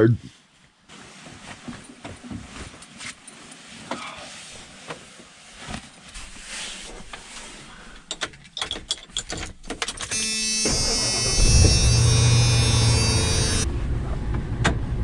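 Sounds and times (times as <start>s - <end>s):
rustling: 0.3s - 7.9s.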